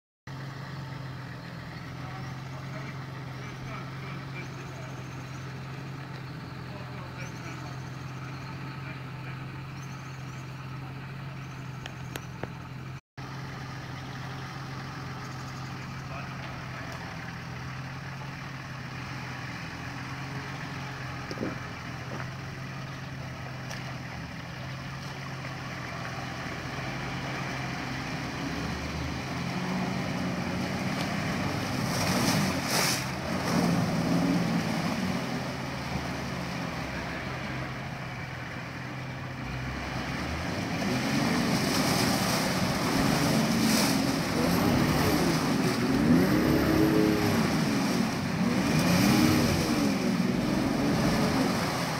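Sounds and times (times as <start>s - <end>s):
off-road vehicle engine revving: 0.3s - 51.9s
water splashing: 20.5s - 37.7s, 39.8s - 51.9s.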